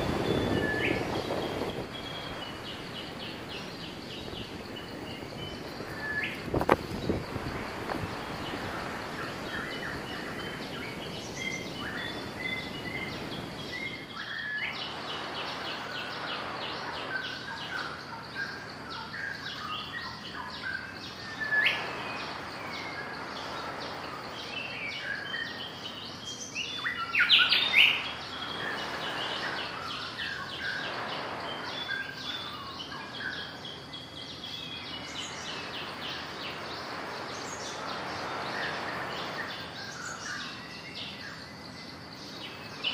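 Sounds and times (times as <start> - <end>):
outdoor background noise: 0.0 - 42.9
small birds chirping and trilling: 0.0 - 42.9.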